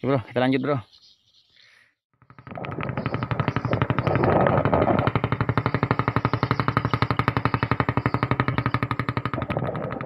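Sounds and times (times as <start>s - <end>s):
small boat engine chugging: 2.2s - 10.0s.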